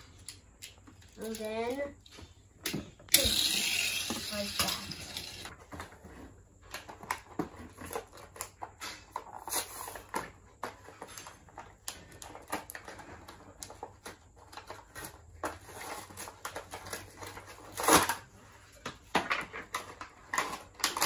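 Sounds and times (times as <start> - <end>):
toy packaging crinkling: 3.1 - 5.5.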